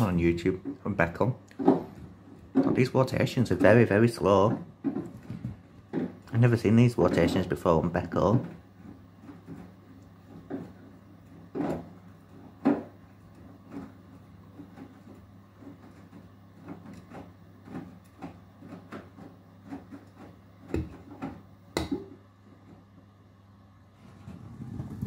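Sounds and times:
laundry knocking in washing machine: 0:00.0 - 0:22.3
low motor hum: 0:22.3 - 0:25.0.

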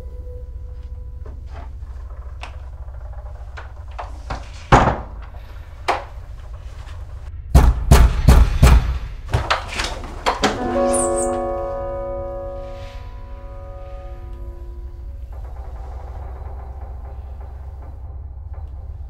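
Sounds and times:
steady low rumble: 0:00.0 - 0:19.0
knocking and banging on a door: 0:04.0 - 0:05.3.

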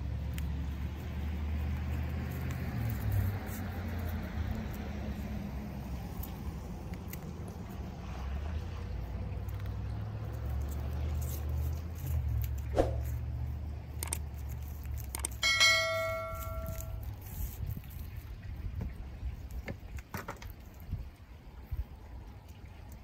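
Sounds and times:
metal part striking and ringing: 0:15.4 - 0:17.1.

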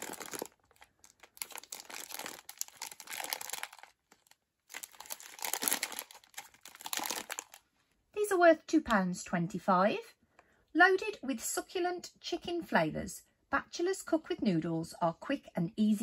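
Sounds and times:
plastic wrapper crinkling: 0:00.0 - 0:07.7.

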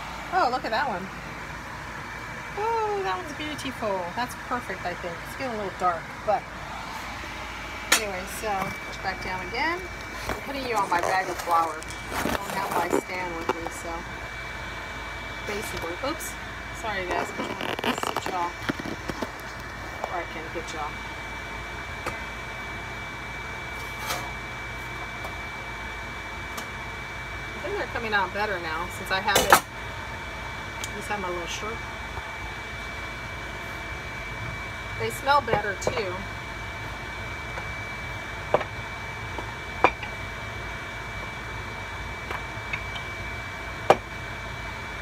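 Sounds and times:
vent fan whining: 0:00.0 - 0:45.0.

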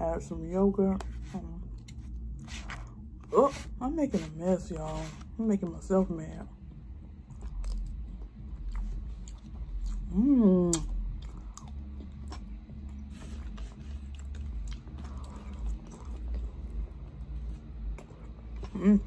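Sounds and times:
chewing and lip-smacking: 0:06.6 - 0:19.0.

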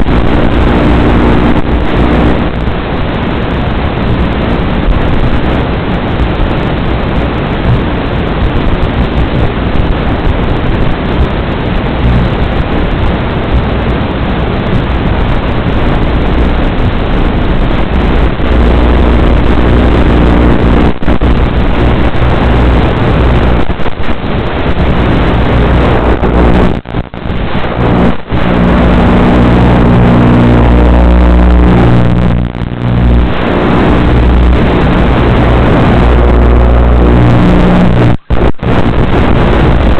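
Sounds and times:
drone motors and propellers: 0:00.0 - 0:03.4, 0:14.8 - 0:38.2.

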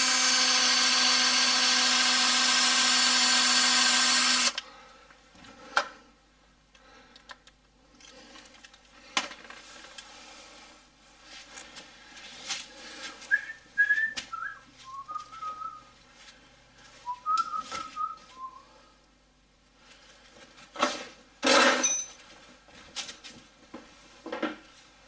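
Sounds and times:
man whistling a tune: 0:13.3 - 0:15.9, 0:17.0 - 0:18.7.

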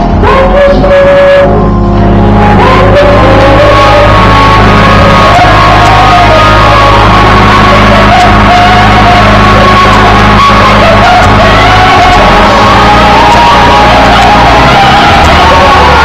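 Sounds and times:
woman singing gospel: 0:00.2 - 0:01.6, 0:02.4 - 0:04.2.

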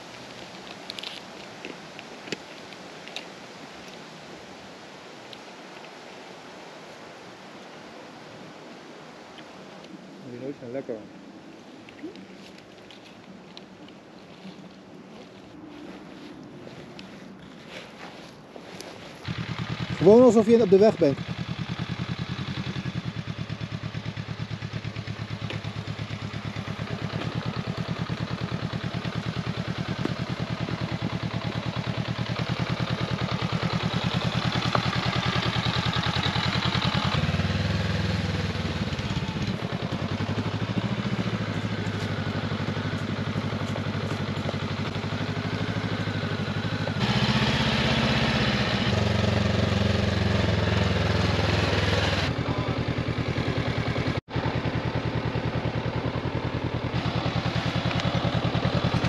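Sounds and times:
motorcycle engine running: 0:19.2 - 0:59.0.

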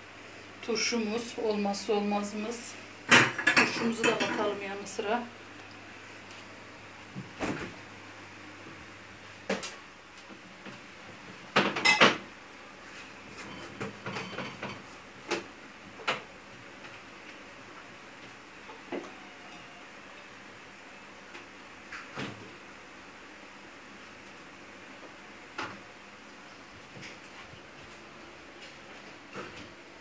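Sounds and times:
dishes clattering on countertop: 0:03.1 - 0:04.4, 0:11.5 - 0:12.2, 0:13.4 - 0:14.9.

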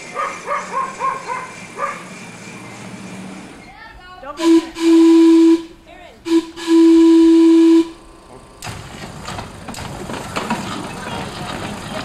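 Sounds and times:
wheels rumbling on track: 0:00.0 - 0:12.0
streetcar whistle: 0:04.4 - 0:08.2.

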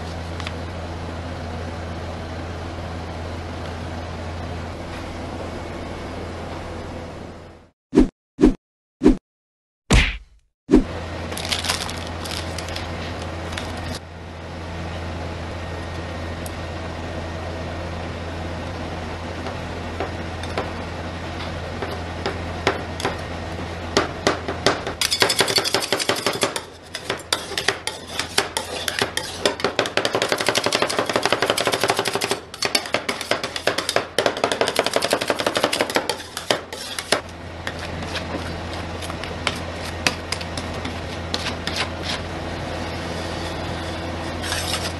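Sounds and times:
metal spatulas scraping cold plate: 0:25.0 - 0:44.9.

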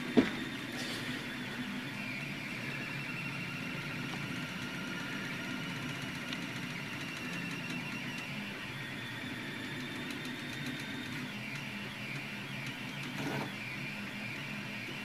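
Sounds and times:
stepper motors whining: 0:00.0 - 0:15.0.

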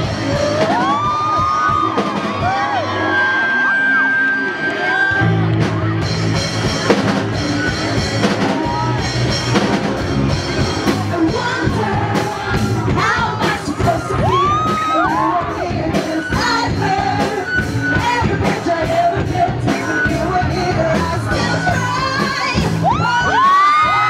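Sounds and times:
live rock band playing: 0:00.0 - 0:24.0
person singing: 0:10.6 - 0:24.0.

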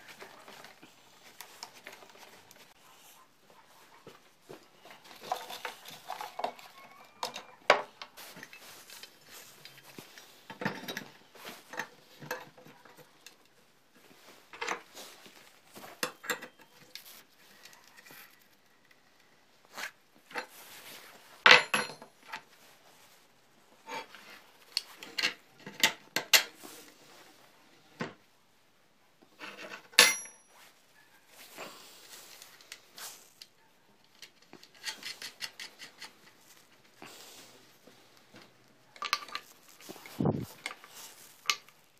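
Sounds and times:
metal clinks and knocks: 0:29.7 - 0:30.6.

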